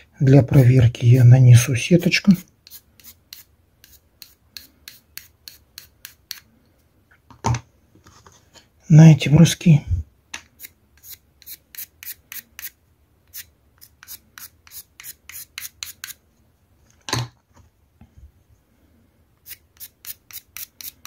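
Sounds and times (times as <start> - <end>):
pencil scratching on stone: 2.0 - 6.4, 11.0 - 16.2.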